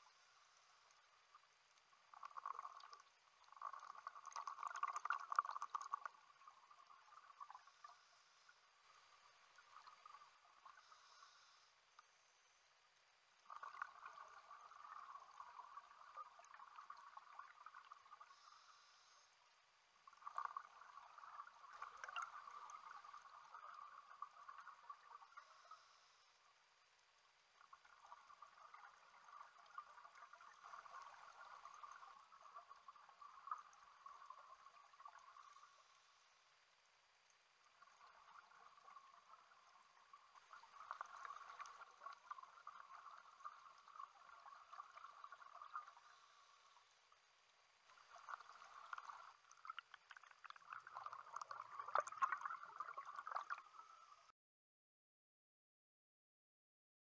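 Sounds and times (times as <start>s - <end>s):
underwater exhaled air bubbling: 2.0s - 11.6s, 37.7s - 46.9s, 47.9s - 54.3s.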